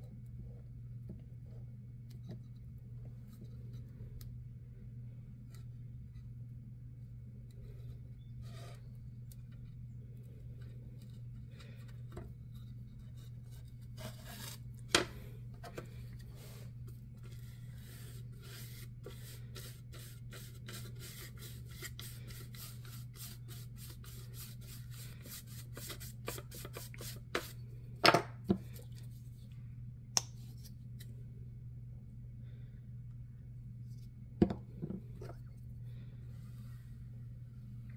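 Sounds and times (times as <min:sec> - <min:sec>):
steady low hum: 0:00.0 - 0:37.9
paintbrush scratching on wood: 0:16.3 - 0:27.6.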